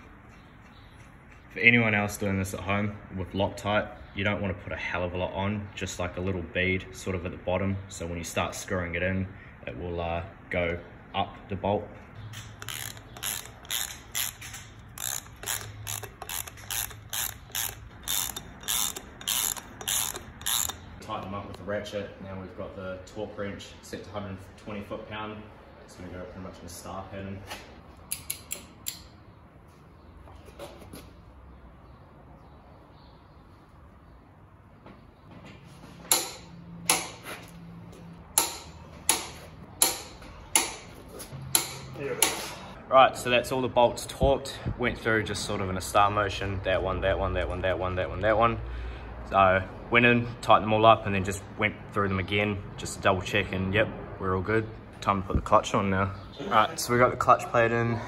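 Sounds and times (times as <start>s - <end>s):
hand ratchet clicking: 12.4s - 20.9s.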